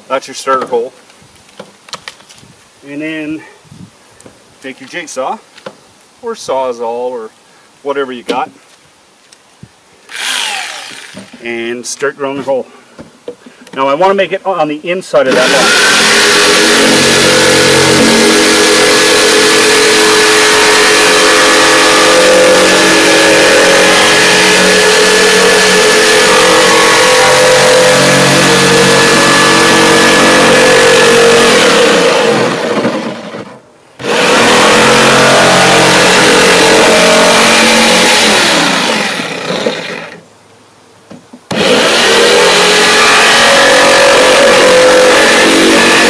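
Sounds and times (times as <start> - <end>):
electric jigsaw cutting plastic: 10.1 - 11.4, 15.3 - 33.4, 34.0 - 40.2, 41.5 - 46.0.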